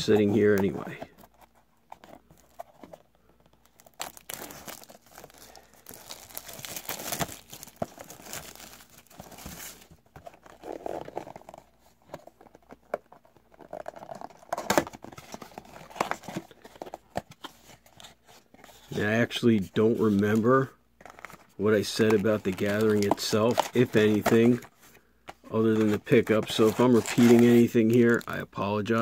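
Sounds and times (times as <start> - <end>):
plastic wrap tearing and crinkling: 3.6 - 9.9, 26.5 - 28.4.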